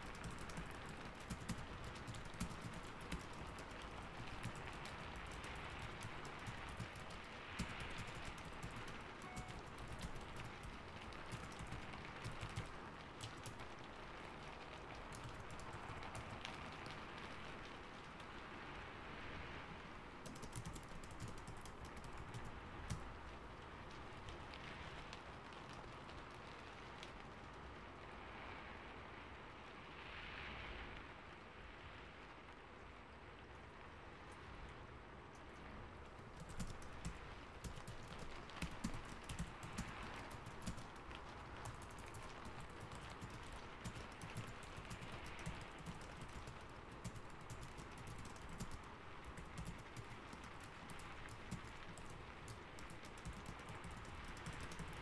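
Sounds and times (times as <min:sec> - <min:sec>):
computer keyboard typing: 0:00.0 - 0:13.8, 0:14.9 - 0:16.7, 0:20.2 - 0:23.2, 0:36.2 - 0:55.0
soft rain hiss: 0:00.0 - 0:55.0.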